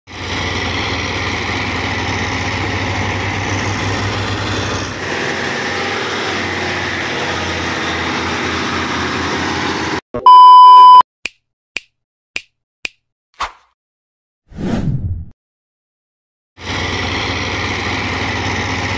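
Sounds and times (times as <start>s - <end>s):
diesel truck engines running: 0.1s - 10.0s, 16.6s - 18.9s
excavator engine running: 0.1s - 11.0s, 16.6s - 18.9s
test pattern beep: 10.2s - 11.0s.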